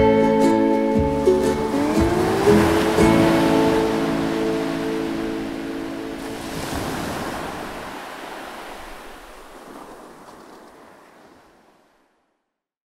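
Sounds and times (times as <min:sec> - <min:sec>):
ocean surf washing: 0:01.0 - 0:12.2.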